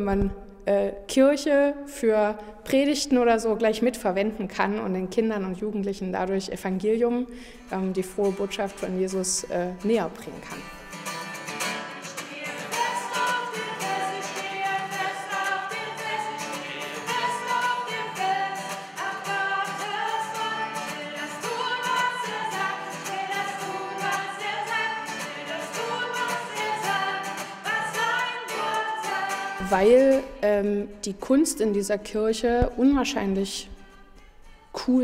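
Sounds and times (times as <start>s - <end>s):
strummed acoustic guitar: 7.4s - 30.6s
person singing: 11.9s - 30.6s.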